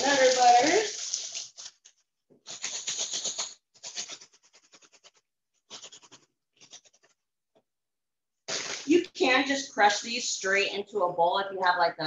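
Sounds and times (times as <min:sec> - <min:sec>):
plastic bag crinkling: 0:00.0 - 0:02.0, 0:08.5 - 0:09.1.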